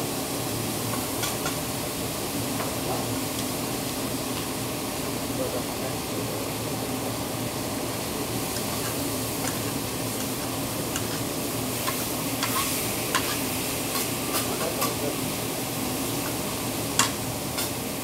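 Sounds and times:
food sizzling on griddle: 0:00.0 - 0:18.0
metal spatula tapping and scraping: 0:08.6 - 0:15.0, 0:16.2 - 0:17.8.

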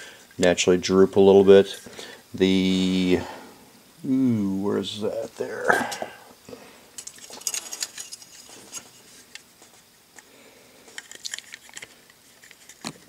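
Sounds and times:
plastic parts clicking: 0:10.9 - 0:13.0.

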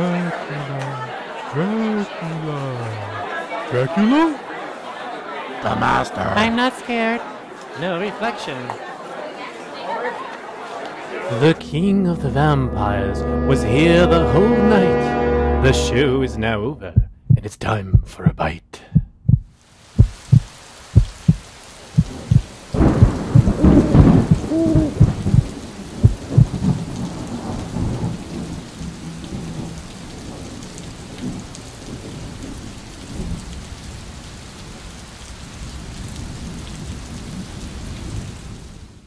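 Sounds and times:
steady rain: 0:00.0 - 0:11.6, 0:19.5 - 0:39.0
low thumps: 0:16.8 - 0:26.6
thunder crash rumbling: 0:22.0 - 0:33.4.

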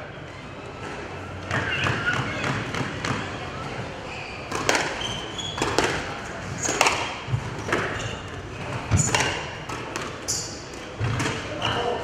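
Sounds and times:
shoes squeaking on wooden floor: 0:04.0 - 0:09.3, 0:10.2 - 0:12.0
squash ball hits: 0:04.5 - 0:11.8.

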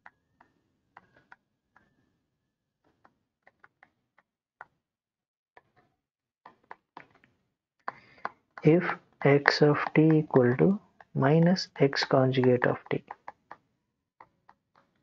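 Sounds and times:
stylus tapping on pen tablet: 0:07.9 - 0:15.0.

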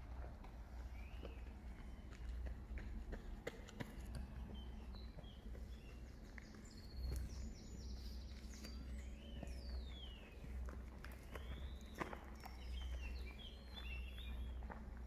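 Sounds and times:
footsteps on a path: 0:00.0 - 0:15.0
bird chirps: 0:04.2 - 0:10.6, 0:11.2 - 0:14.6.

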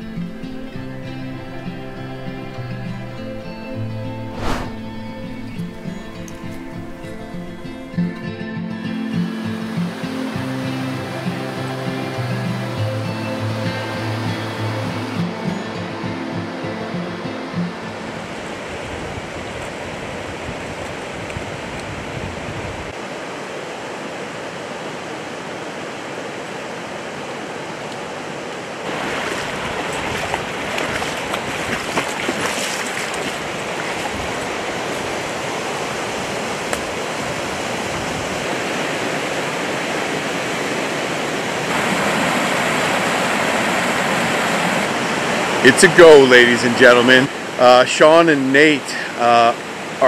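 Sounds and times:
whitewater rushing over rocks: 0:00.0 - 0:21.8, 0:23.0 - 0:50.0.

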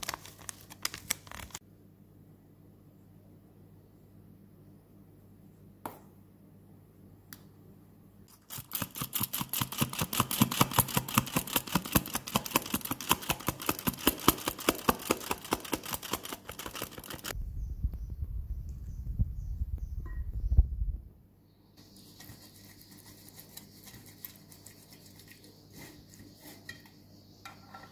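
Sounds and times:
flour sifter clicking: 0:08.5 - 0:17.4
low rumble: 0:17.4 - 0:21.2.

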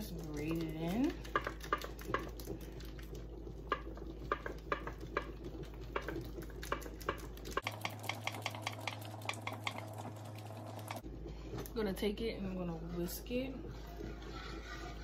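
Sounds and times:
cheese scraping on metal grater: 0:13.8 - 0:15.0.

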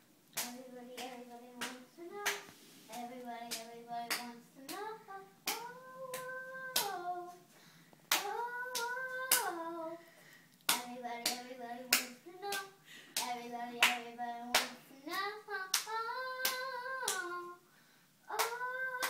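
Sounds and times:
hands clapping to a beat: 0:00.4 - 0:04.9, 0:05.5 - 0:07.0, 0:08.1 - 0:09.6, 0:10.7 - 0:17.3, 0:18.3 - 0:19.0
girl singing in high voice: 0:00.4 - 0:07.5, 0:08.1 - 0:10.1, 0:10.7 - 0:19.0.

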